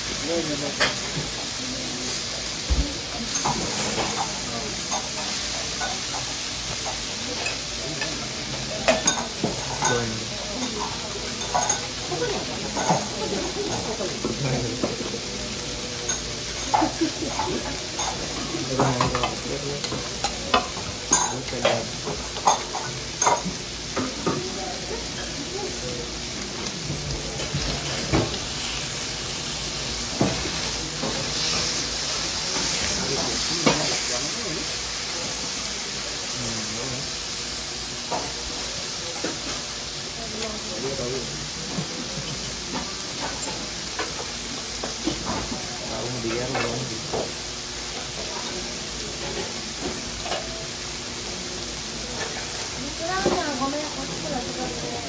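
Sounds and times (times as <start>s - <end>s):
meat sizzling on a griddle: 0.0s - 55.0s
metal utensils clinking on griddle: 3.2s - 15.3s, 15.9s - 25.3s, 47.9s - 50.6s.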